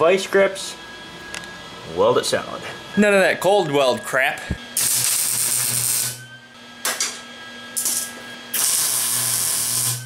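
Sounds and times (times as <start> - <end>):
welding arc crackling: 4.7 - 6.2, 7.8 - 10.0.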